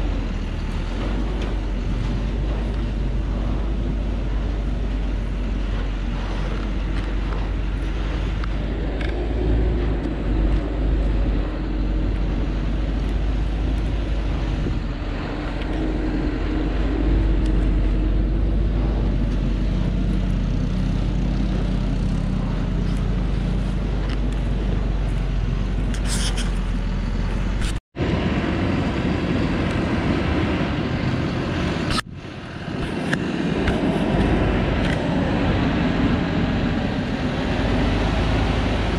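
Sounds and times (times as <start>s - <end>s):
diesel truck engine labouring: 0.0s - 38.9s.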